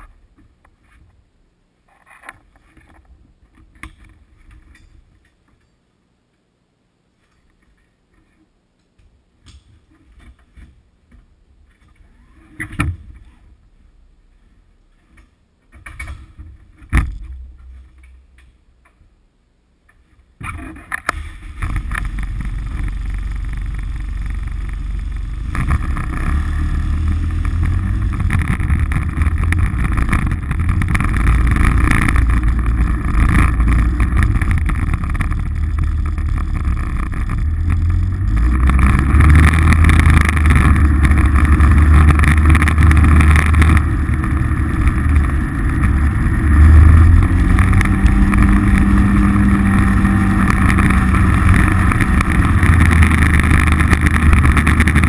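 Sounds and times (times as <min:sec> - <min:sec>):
vehicle engine driving: 0:21.0 - 0:55.0.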